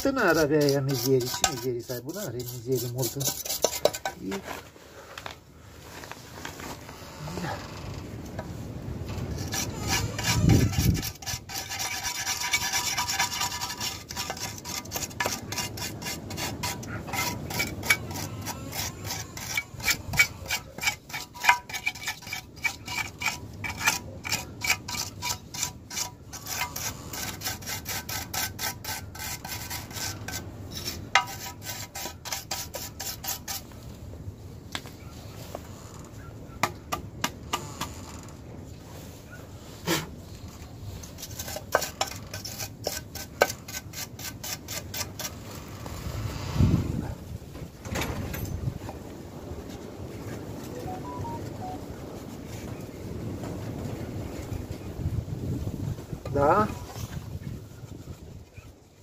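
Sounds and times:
rapid scrubbing on engine cover: 0.0 - 4.4, 9.3 - 33.7.

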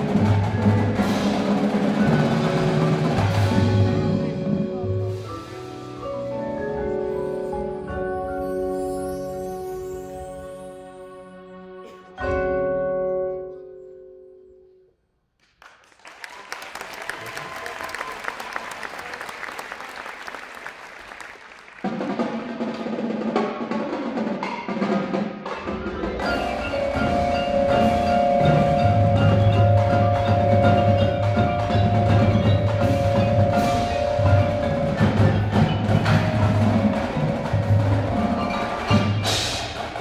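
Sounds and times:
drums: 0.0 - 10.0, 20.1 - 40.0
percussion ensemble playing: 0.0 - 13.5, 16.9 - 40.0
marimbas: 0.0 - 14.9, 23.9 - 40.0.

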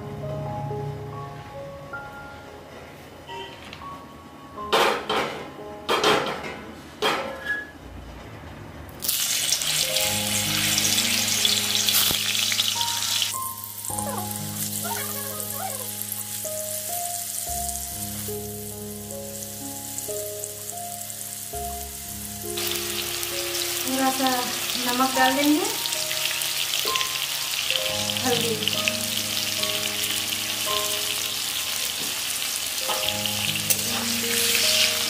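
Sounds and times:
potatoes sizzling in hot oil: 9.0 - 35.0.

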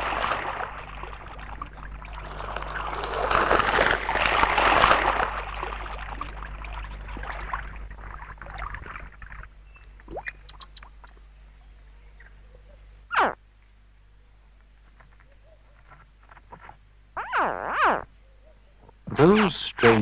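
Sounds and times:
water splashing and sloshing: 0.0 - 11.2.

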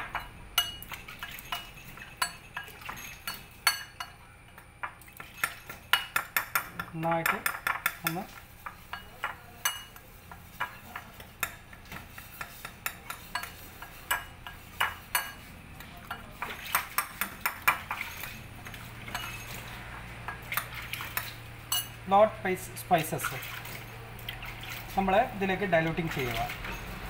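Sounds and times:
metal spoon clinking on ceramic bowl: 0.0 - 4.2, 4.8 - 11.6, 19.1 - 19.6, 20.3 - 22.0.

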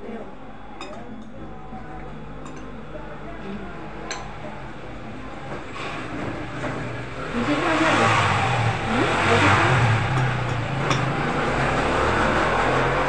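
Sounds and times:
vehicle passing engine revving: 7.0 - 13.0.

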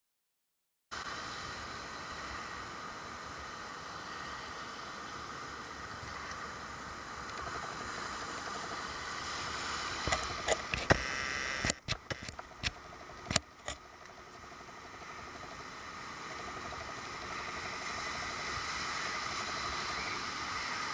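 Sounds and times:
sharp clicks and knocks: 10.0 - 14.2.

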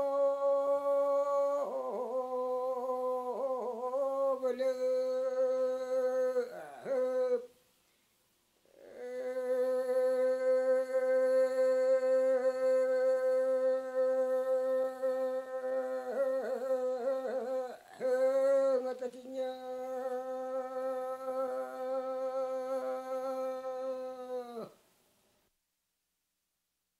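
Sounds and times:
man chanting one long note: 8.8 - 24.7.

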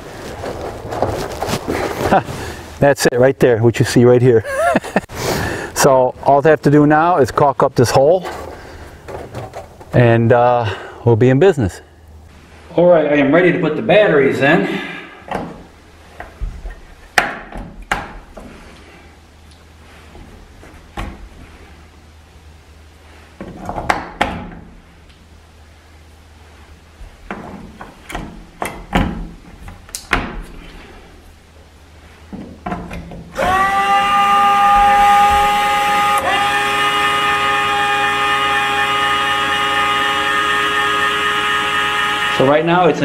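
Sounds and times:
electric door motor whine: 33.3 - 42.8.

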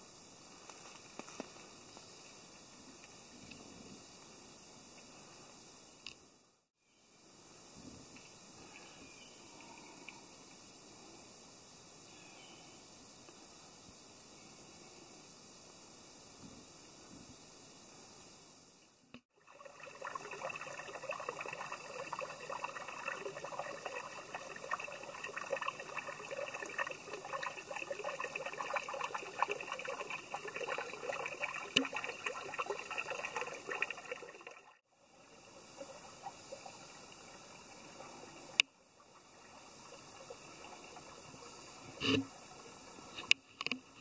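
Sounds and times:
brook trickling over rocks: 19.4 - 43.3.

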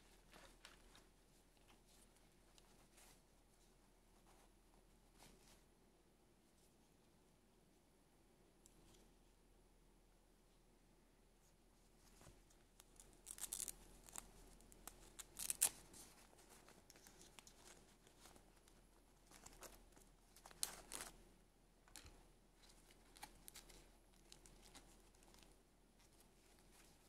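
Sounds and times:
doll dress rustling: 11.9 - 21.2.

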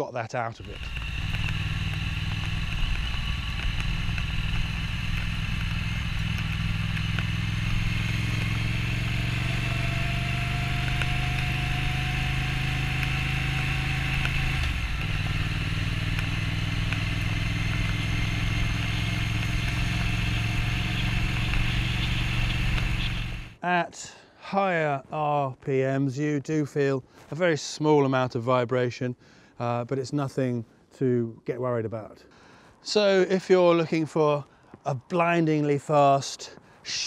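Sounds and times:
motorcycle engine running: 0.6 - 23.6.

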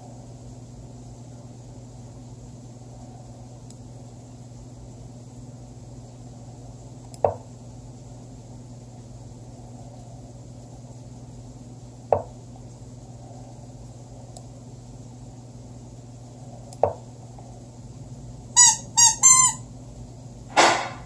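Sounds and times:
computer hum: 0.0 - 21.0
squeeze toy squeaks: 18.6 - 19.6.

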